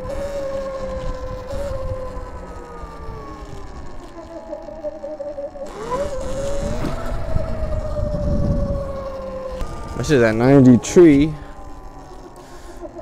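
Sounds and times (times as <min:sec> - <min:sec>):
electric motorbike motor whining: 0:00.0 - 0:13.0
wind: 0:00.0 - 0:13.0.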